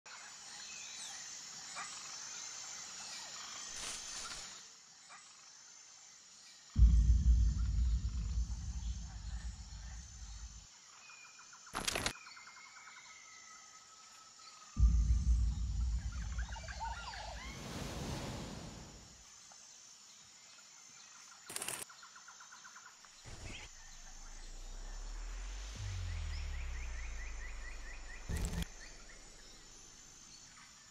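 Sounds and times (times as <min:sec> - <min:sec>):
low hum: 0:06.8 - 0:10.6, 0:14.8 - 0:19.2, 0:23.3 - 0:30.6
sharp noise bursts: 0:06.8 - 0:10.6, 0:23.3 - 0:30.4
birds chirping: 0:14.8 - 0:19.0
whooshing swell: 0:14.8 - 0:19.2, 0:23.7 - 0:30.2
background hiss: 0:14.8 - 0:20.9.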